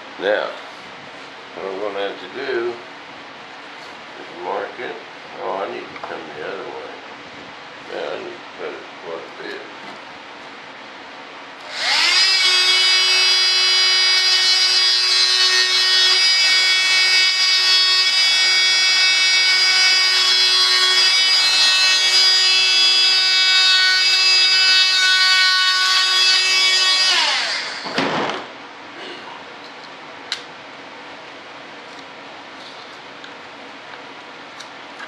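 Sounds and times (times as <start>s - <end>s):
power cutting tool whining: 11.6s - 28.0s.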